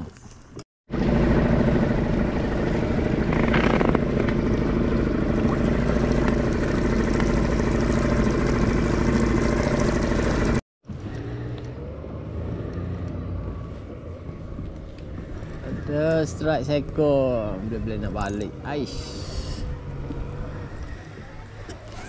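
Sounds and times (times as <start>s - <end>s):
outboard motor running: 0.9s - 11.5s, 13.3s - 22.0s.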